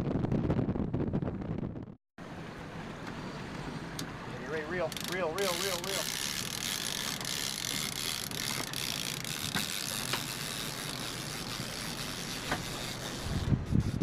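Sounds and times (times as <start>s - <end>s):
fishing reel whirring: 4.6s - 14.0s.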